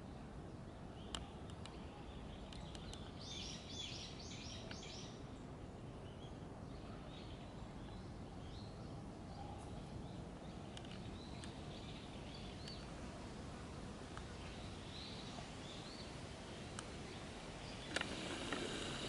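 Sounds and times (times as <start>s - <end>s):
faint bird chirps: 0.8s - 13.3s
faint sharp ticks: 16.7s - 17.0s.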